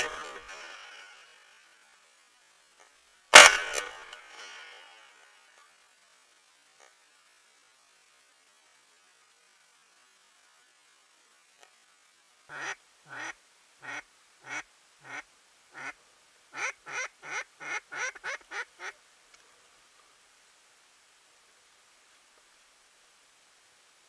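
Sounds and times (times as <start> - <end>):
duck quacking: 12.5 - 19.0.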